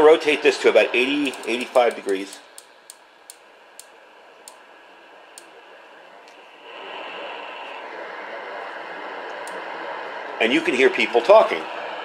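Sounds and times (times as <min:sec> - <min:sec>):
radio static hiss: 0:04.9 - 0:12.0.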